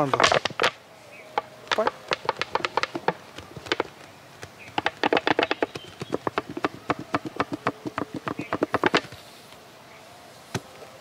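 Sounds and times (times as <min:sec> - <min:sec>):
plastic bottle crackling: 0:01.7 - 0:09.2.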